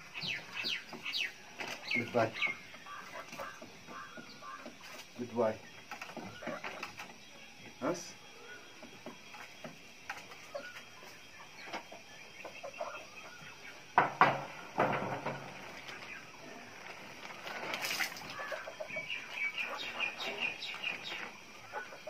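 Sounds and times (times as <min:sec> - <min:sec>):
chickens clucking: 0:00.0 - 0:22.0
sharp knocks: 0:14.0 - 0:15.5
plastic sheeting rustling: 0:15.6 - 0:18.6.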